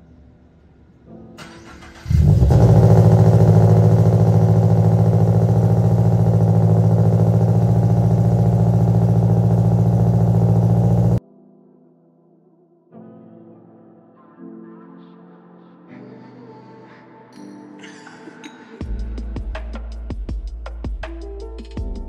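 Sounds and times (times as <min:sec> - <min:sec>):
car engine starting and idling: 0:01.4 - 0:11.2.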